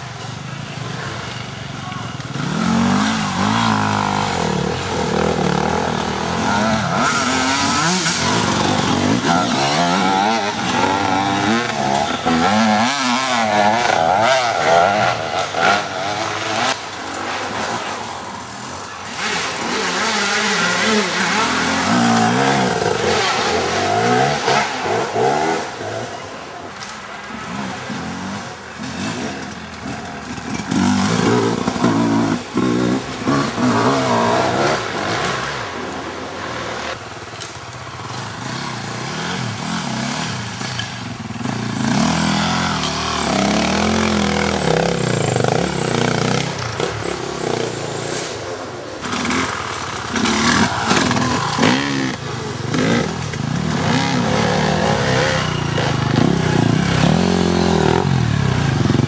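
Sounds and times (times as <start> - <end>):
dirt bikes revving: 0.0 - 59.0.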